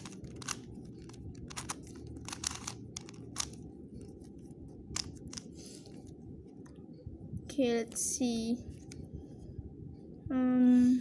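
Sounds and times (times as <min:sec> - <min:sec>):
puzzle cube layers clicking: 0:00.0 - 0:03.6
steady low hum: 0:00.0 - 0:11.0.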